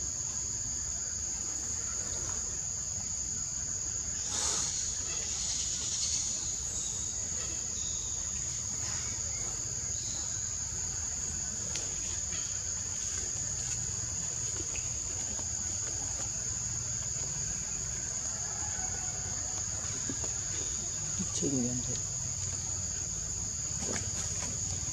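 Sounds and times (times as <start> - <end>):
insects chirping shrilly: 0.0 - 11.2.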